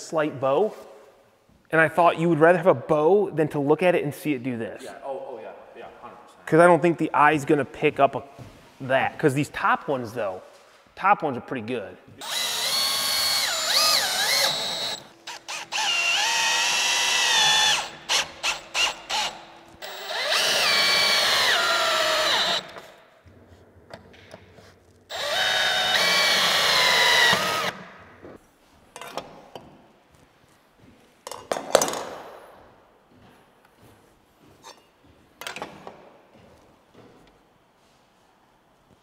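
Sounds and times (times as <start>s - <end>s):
cordless drill driving screws: 12.2s - 23.0s, 25.1s - 27.8s.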